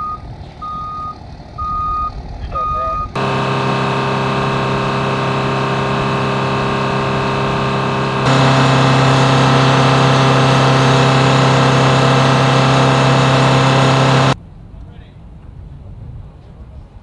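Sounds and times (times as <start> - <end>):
machine drone: 3.2 - 14.4
strong low hum: 3.2 - 14.4.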